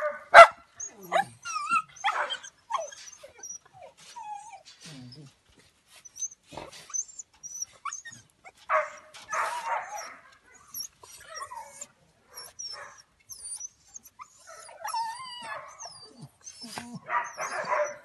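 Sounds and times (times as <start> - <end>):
dog barks: 0.0 - 1.3, 2.0 - 2.4, 8.7 - 10.5, 16.9 - 18.0
dogs whining and yipping: 0.8 - 18.0.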